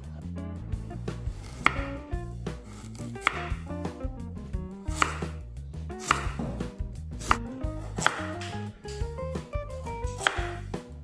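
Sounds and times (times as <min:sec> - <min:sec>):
background music: 0:00.0 - 0:11.0
knife slicing sweet potato: 0:01.2 - 0:03.8, 0:04.9 - 0:09.2, 0:10.0 - 0:10.7
knife knocking on wooden board: 0:06.0 - 0:09.2, 0:10.0 - 0:10.6.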